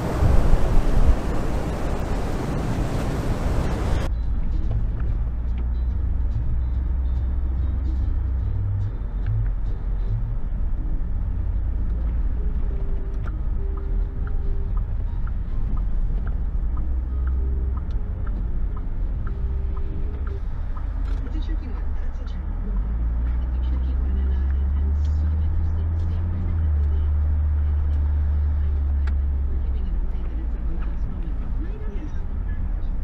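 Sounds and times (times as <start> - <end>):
loud rushing noise: 0.0 - 4.1
car engine and road rumble: 0.0 - 33.0.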